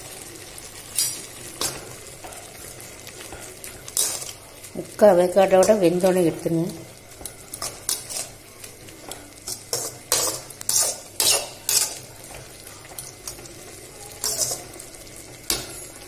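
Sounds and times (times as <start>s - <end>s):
metal spoon scraping a metal pot: 9.5s - 12.0s, 14.2s - 14.7s.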